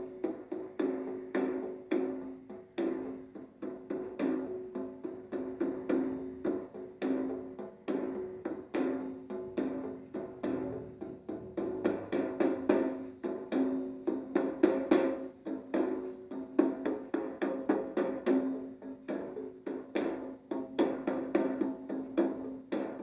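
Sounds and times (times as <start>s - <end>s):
percussive music from television: 7.8s - 18.4s.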